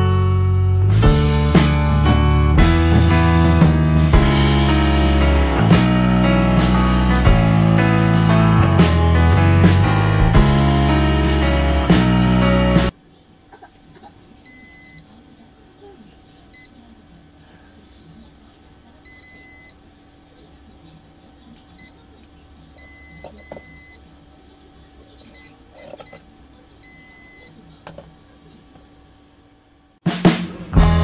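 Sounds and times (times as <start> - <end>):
multimeter continuity beeps: 14.4 - 15.1, 19.0 - 19.8, 22.8 - 24.0, 26.8 - 27.6.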